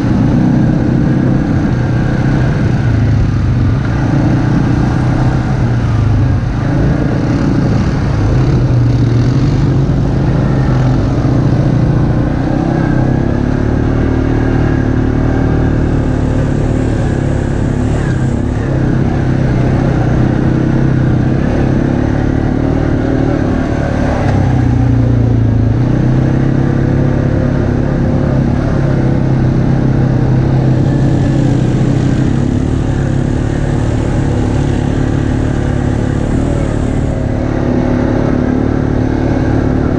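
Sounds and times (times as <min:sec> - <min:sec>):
atv engine running: 0:00.0 - 0:39.9.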